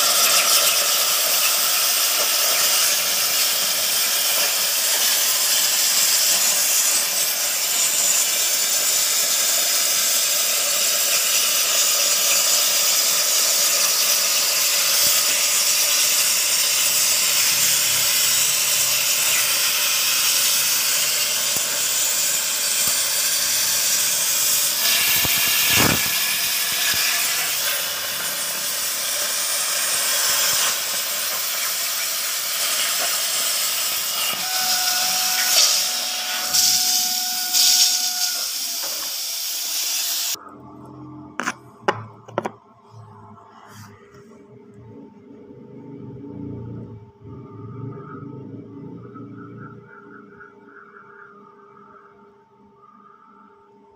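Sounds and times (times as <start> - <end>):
plasma cutter hissing: 0.0 - 40.4.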